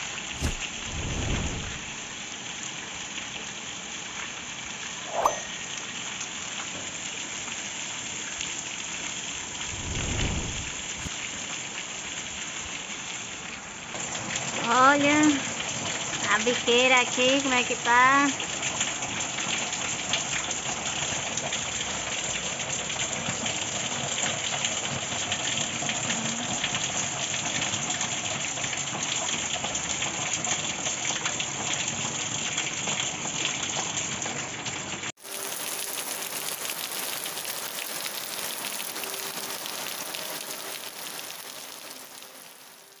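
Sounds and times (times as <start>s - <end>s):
rain on plastic barrels and concrete: 1.9s - 5.0s, 5.6s - 43.0s.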